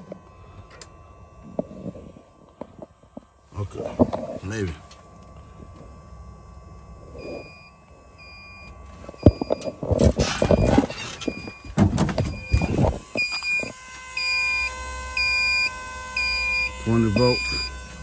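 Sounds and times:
jump starter beeping: 4.5 - 18.0
truck door knocks and clatter: 11.6 - 12.4.

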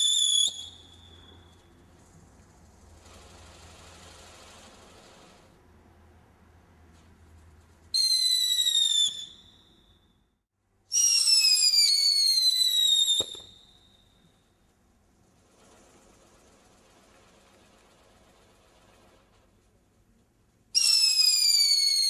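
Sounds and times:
firework whistle: 0.0 - 2.0, 7.9 - 10.2, 10.9 - 14.6, 20.7 - 22.0.

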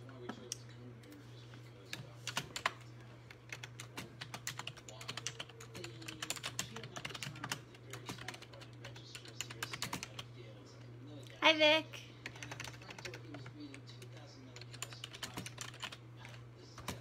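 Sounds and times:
fingers typing: 1.9 - 10.2, 12.2 - 17.0.

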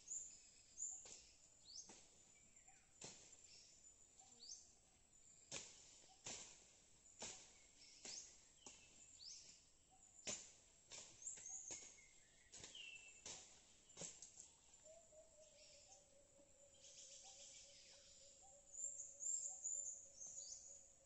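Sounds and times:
machete chopping earth: 10.2 - 14.4.

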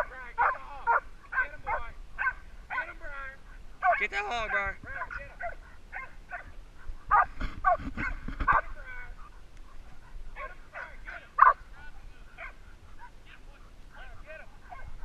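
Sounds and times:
sharp loud dog bark: 0.4 - 2.9, 7.1 - 8.7, 10.4 - 11.6
puppies yipping and barking: 4.9 - 15.0.

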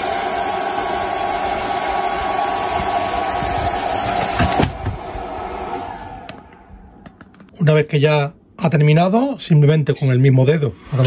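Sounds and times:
air-assist pump blowing hiss: 0.0 - 6.1.

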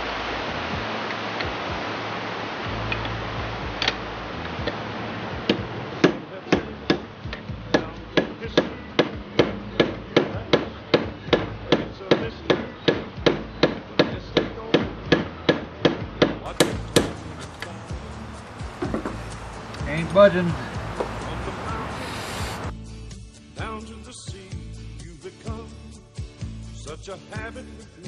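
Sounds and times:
hammer striking steel bar: 16.5 - 17.8.

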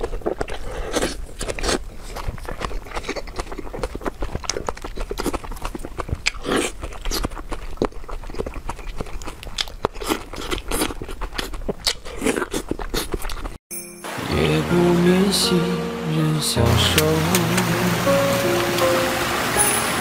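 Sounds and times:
slurping: 0.0 - 13.6
wet chewing smacks: 0.0 - 13.6.

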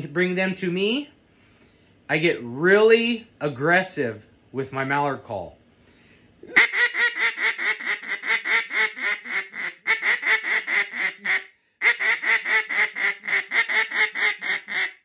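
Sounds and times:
duck call quacks: 6.5 - 15.0.

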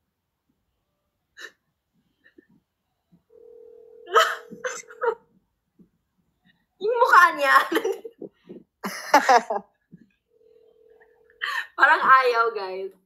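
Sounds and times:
phone ringing tone: 3.3 - 5.2, 10.3 - 11.5.

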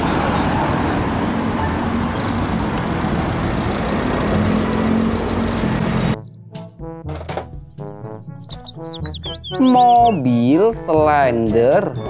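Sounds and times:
bus engine running: 0.0 - 9.5
road and traffic noise: 0.0 - 10.7.

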